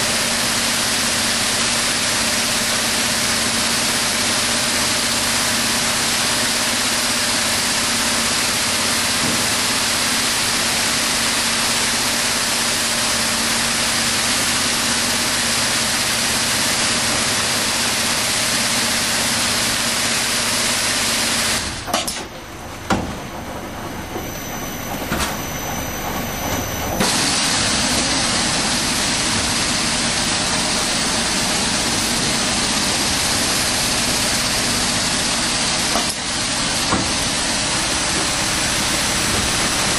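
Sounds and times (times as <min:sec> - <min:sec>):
packaging machine hissing: 0:24.0 - 0:39.9.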